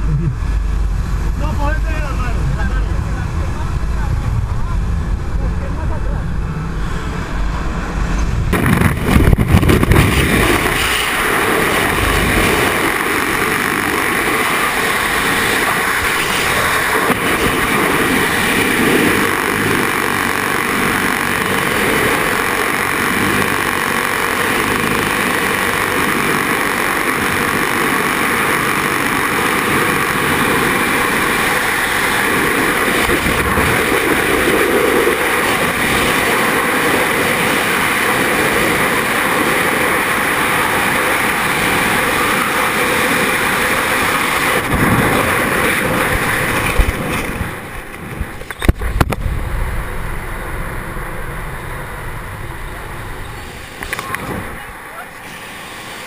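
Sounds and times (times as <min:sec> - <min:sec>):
freefall wind buffeting microphone: 0:00.0 - 0:56.0
light aircraft cabin drone: 0:00.0 - 0:56.0.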